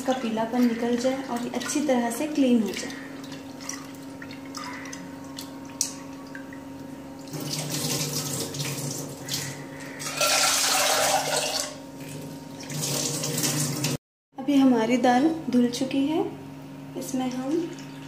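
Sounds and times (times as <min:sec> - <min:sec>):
water poured into sink: 0:07.3 - 0:14.0.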